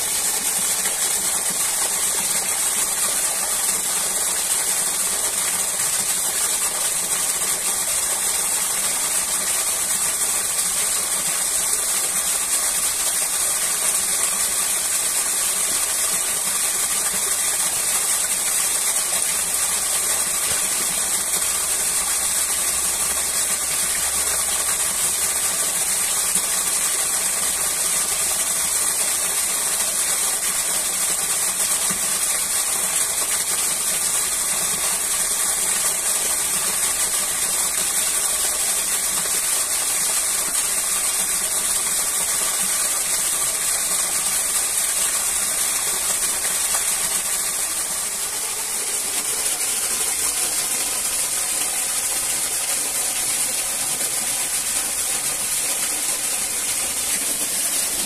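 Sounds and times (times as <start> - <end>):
waterfall rushing: 45.3 - 58.0.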